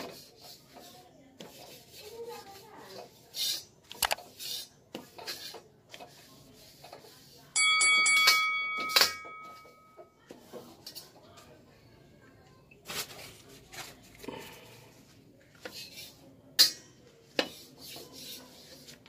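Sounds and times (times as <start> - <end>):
paper towel wiping wok: 0.0 - 7.5, 17.4 - 19.0
metal spatula scraping a wok: 0.0 - 7.6, 15.6 - 19.0.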